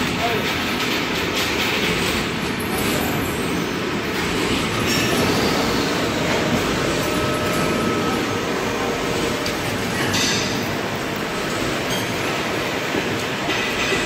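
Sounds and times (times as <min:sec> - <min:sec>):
machine mechanical clatter: 0:00.0 - 0:03.5.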